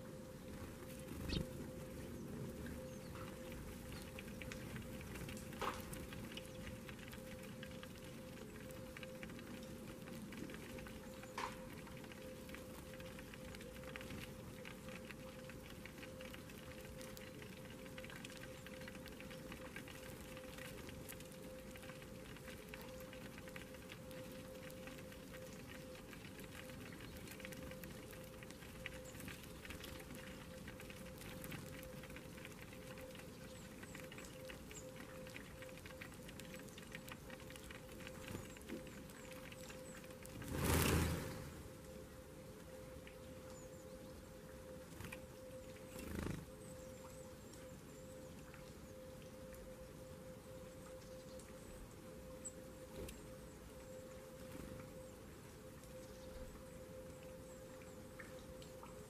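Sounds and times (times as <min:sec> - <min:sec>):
birds pecking seeds: 0:00.4 - 0:41.6, 0:44.9 - 0:46.6.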